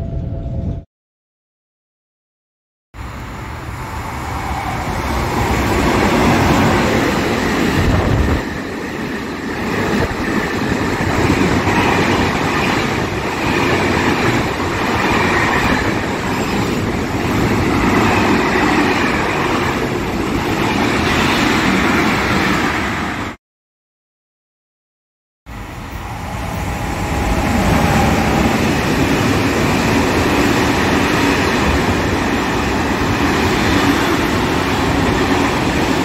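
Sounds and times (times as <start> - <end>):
freight train wagons rumbling and rattling: 4.0 - 22.6.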